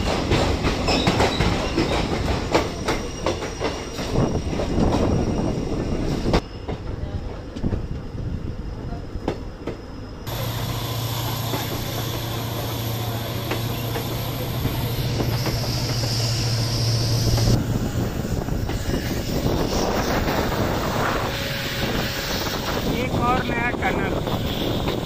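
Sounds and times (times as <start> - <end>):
train wheel and rail noise: 0.0 - 25.0
high squeal: 10.0 - 23.0.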